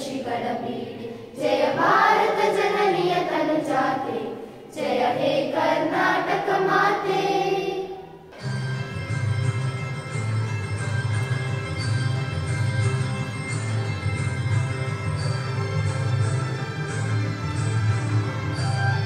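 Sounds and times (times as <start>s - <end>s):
children's choir singing: 0.0s - 8.4s
steady music: 1.5s - 19.0s.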